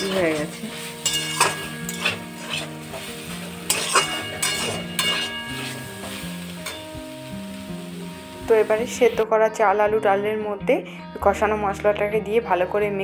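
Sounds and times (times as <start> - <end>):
spatula scraping a pan: 0.0 - 6.9
food sizzling in oil: 0.0 - 9.2.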